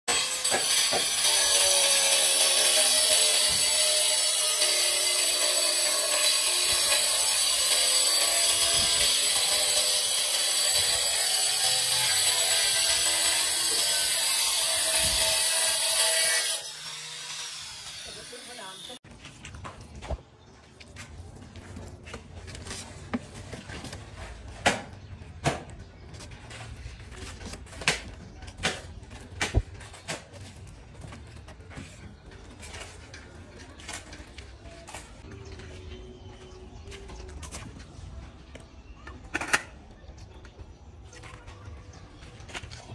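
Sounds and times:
tool sawing with rasping noise: 0:00.1 - 0:19.0.

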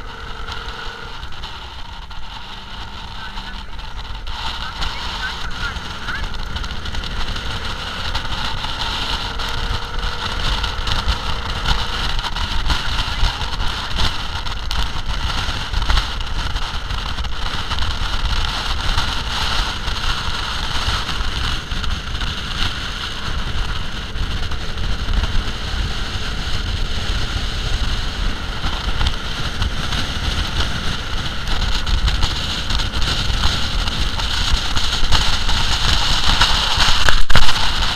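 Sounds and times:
engine running at speed: 0:00.0 - 0:37.9
wind buffeting microphone: 0:00.0 - 0:37.9.

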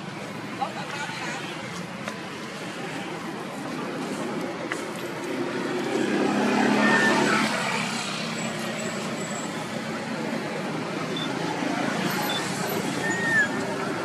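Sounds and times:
road traffic hum: 0:00.0 - 0:14.0
vehicle engine passing: 0:05.2 - 0:14.0.

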